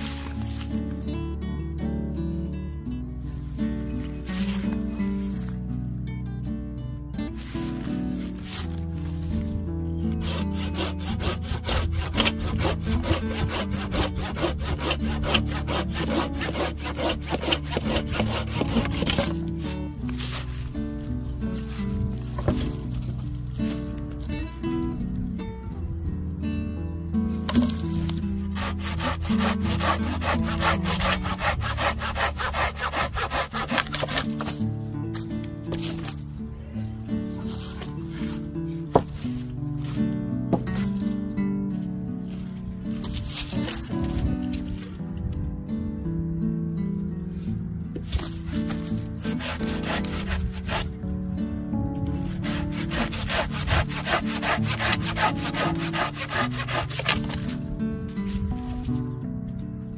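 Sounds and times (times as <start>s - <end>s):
hand saw cutting a log: 0.0s - 0.6s, 10.1s - 20.6s, 27.5s - 34.6s, 43.0s - 44.2s, 48.1s - 51.0s, 52.2s - 57.6s
background music: 0.0s - 59.9s.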